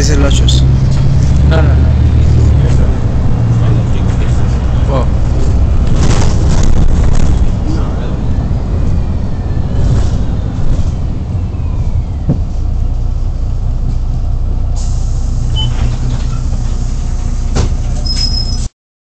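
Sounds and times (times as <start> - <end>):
bus engine and road rumble: 0.0 - 18.7
rattles and clicks: 2.7 - 7.9
brief high squeak: 15.5 - 16.5, 18.0 - 18.7.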